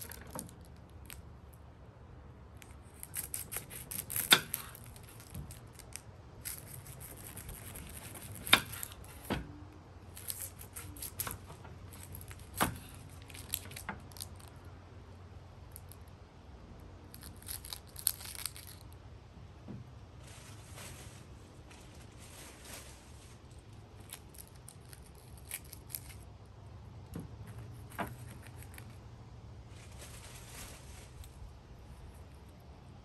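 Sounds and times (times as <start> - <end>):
onion skin crackling: 2.6 - 9.2, 17.1 - 19.0, 23.7 - 26.4.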